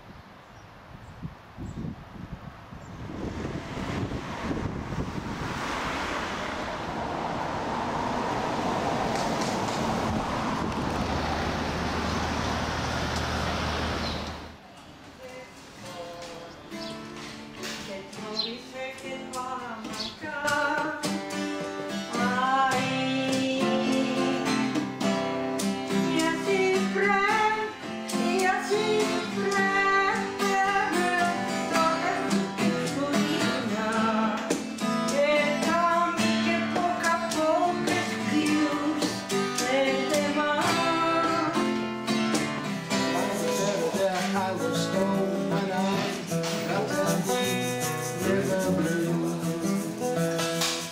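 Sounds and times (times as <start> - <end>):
person singing folk song: 15.2 - 50.9
acoustic guitar strummed: 15.8 - 50.9.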